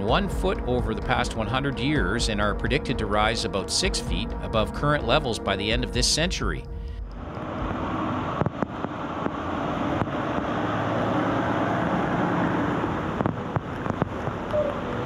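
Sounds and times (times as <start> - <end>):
truck engine running: 0.0 - 15.0
water rushing and splashing: 7.2 - 15.0.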